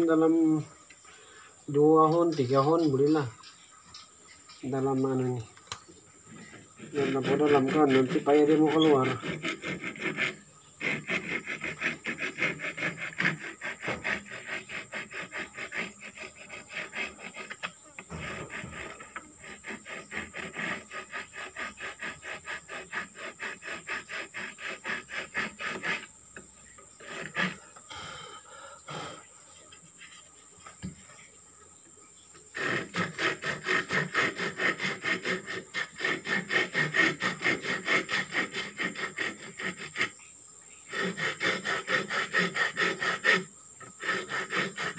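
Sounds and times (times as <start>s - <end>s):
file rasping on wood: 6.3s - 28.3s, 32.5s - 40.2s, 40.9s - 44.9s.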